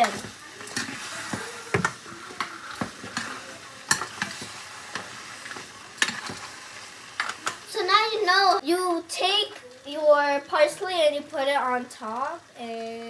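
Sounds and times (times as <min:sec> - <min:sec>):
pasta sizzling in frying pan: 0:00.0 - 0:13.0.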